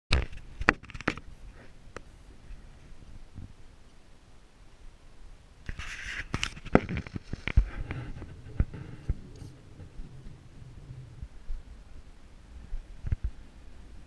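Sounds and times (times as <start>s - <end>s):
rustling: 5.6s - 14.0s.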